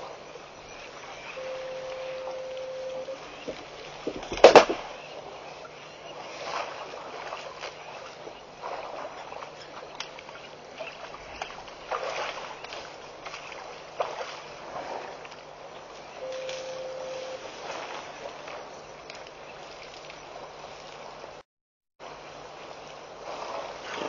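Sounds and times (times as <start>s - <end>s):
water splashing: 0.0s - 21.4s
elephant spraying water: 6.2s - 15.6s, 23.2s - 24.0s.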